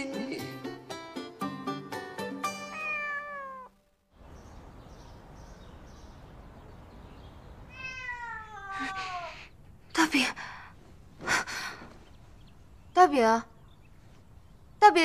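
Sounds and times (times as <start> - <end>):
cat meowing: 2.6 - 3.8, 7.7 - 9.5.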